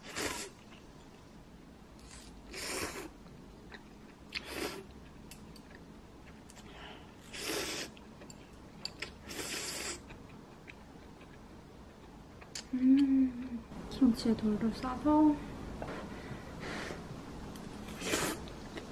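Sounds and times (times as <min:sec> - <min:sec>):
person slurping noodles: 0:00.0 - 0:00.6, 0:02.0 - 0:03.1, 0:07.2 - 0:07.9, 0:09.3 - 0:10.0, 0:17.9 - 0:18.5.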